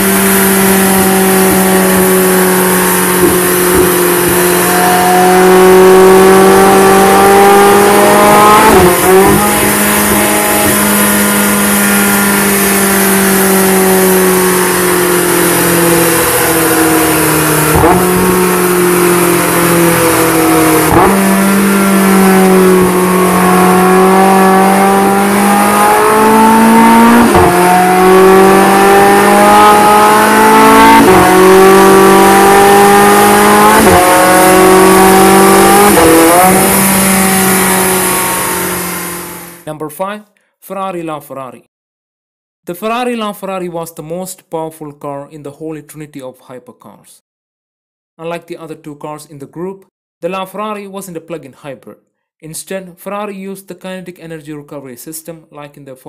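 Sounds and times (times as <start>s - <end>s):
car engine revving through gears: 0.0s - 39.7s.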